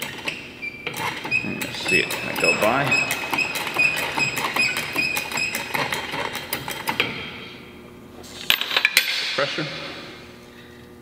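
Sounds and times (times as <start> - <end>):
shop press clicking and squeaking: 0.0 - 7.2.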